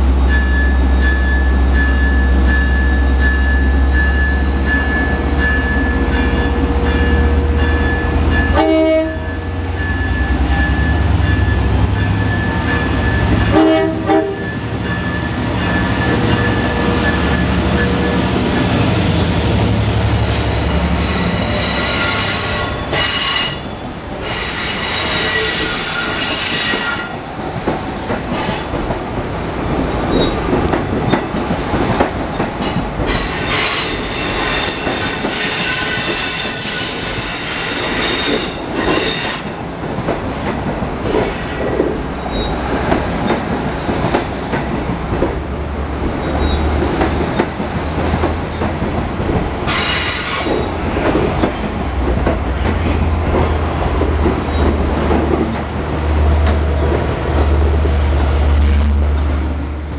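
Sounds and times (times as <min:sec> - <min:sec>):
train coaches rumbling past: 0:00.0 - 0:59.9
train wheels squealing: 0:09.3 - 0:13.4, 0:20.3 - 0:27.4, 0:33.0 - 0:39.6, 0:41.1 - 0:42.6, 0:46.2 - 0:46.7, 0:49.7 - 0:50.7.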